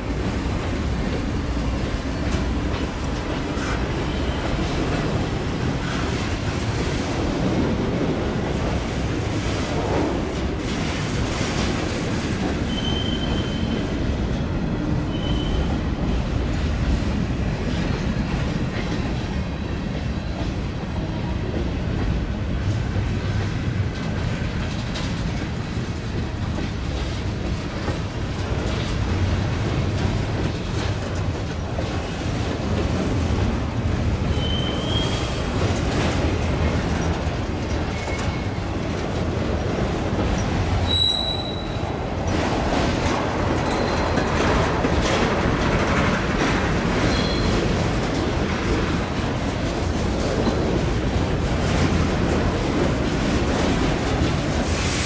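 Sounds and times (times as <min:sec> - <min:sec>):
railcars rumbling: 0:00.0 - 0:55.0
high-pitched wheel squeals: 0:40.8 - 0:41.8.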